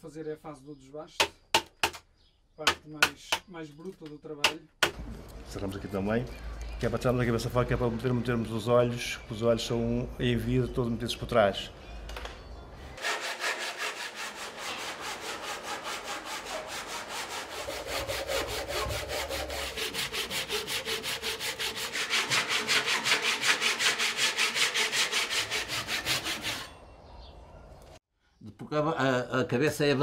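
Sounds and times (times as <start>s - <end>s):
hand saw cutting wood: 13.0s - 26.8s.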